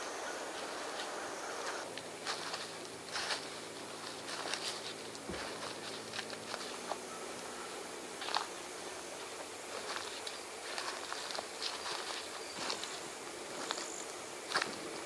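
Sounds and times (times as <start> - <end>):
faint low hum: 0.0 - 15.0
light crackling and rustling: 0.5 - 15.0.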